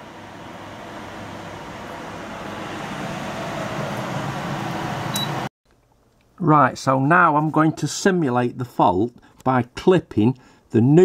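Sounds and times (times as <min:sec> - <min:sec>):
microwave oven humming: 0:00.0 - 0:05.5.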